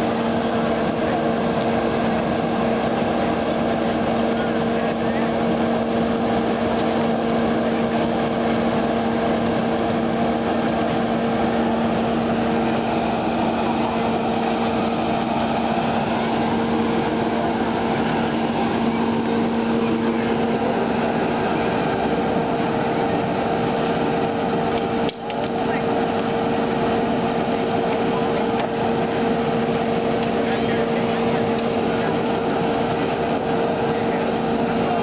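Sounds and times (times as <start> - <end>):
small gasoline engine running: 0.0 - 35.0.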